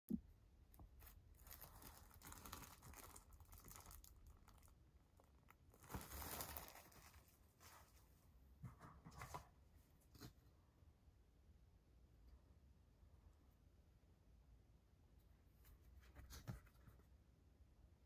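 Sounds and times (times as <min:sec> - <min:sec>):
plastic wrap crinkling: 0:00.8 - 0:07.9.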